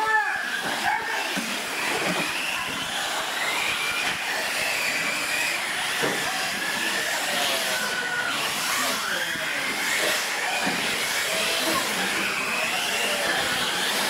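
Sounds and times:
rc truck motors whining: 0.0 - 14.0
tyres and running gear noise: 0.0 - 14.0.

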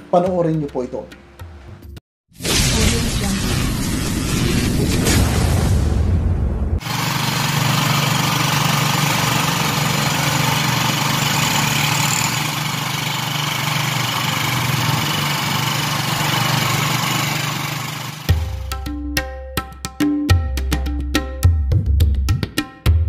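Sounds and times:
small engine running: 6.8 - 18.4.

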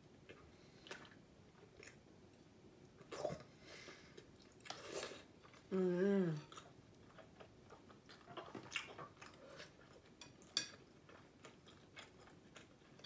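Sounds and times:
soft chewing: 0.2 - 13.0
person humming: 5.7 - 6.5.

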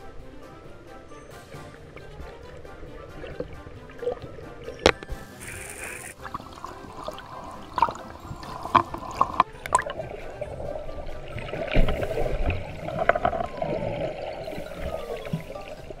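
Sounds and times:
underwater gurgling and sloshing: 0.0 - 16.0.

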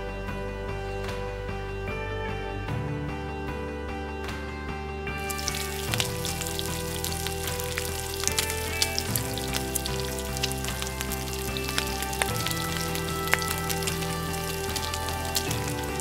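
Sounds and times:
background music with held notes: 0.0 - 16.0
meat sizzling and popping in pan: 5.2 - 16.0.

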